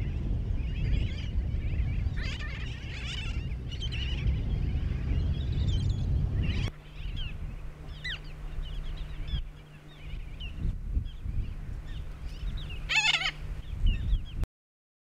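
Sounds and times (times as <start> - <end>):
seabirds calling: 0.0 - 14.4
steady low rumble: 0.0 - 14.4.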